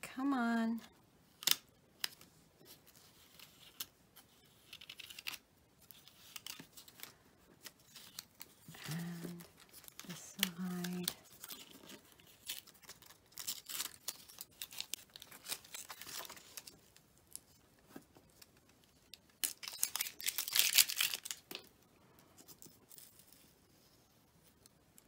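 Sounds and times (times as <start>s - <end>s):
masking paper peeling: 1.4s - 17.4s.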